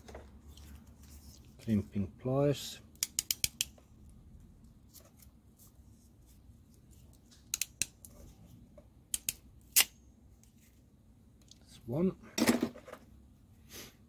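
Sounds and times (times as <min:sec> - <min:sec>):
crimping pliers clicking: 0:07.5 - 0:07.9, 0:09.1 - 0:09.9.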